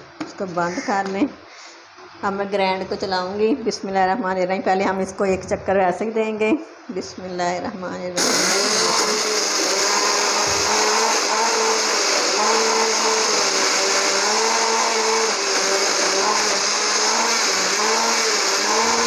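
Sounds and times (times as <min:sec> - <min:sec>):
blender crushing ice: 0:08.2 - 0:19.0.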